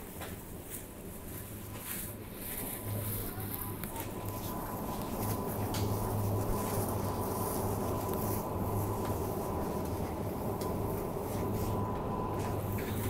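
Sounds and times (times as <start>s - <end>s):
low hum: 2.6s - 13.0s.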